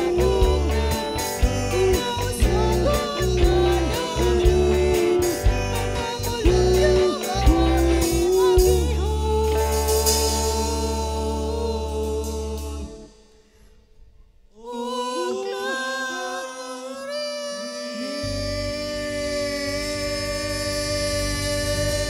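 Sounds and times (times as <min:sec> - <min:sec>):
woman singing: 0:00.0 - 0:13.1, 0:14.6 - 0:22.0
bass guitar: 0:00.0 - 0:13.3, 0:18.2 - 0:22.0
small live band: 0:00.0 - 0:13.7, 0:17.7 - 0:22.0.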